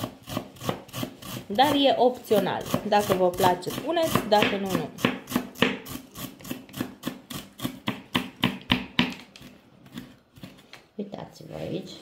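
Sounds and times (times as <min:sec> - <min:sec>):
knife chopping on wooden board: 0:02.6 - 0:09.3.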